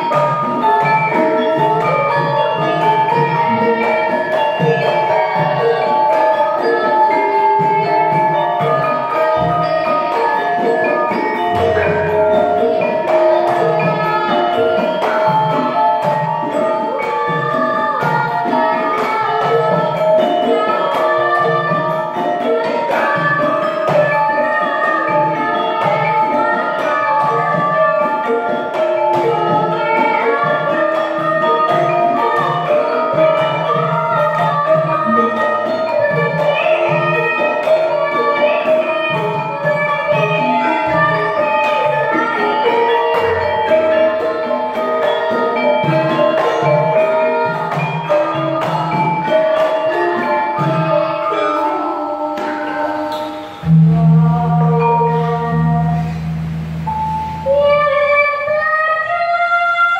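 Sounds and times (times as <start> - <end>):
gamelan ensemble playing: 0.0 - 59.9.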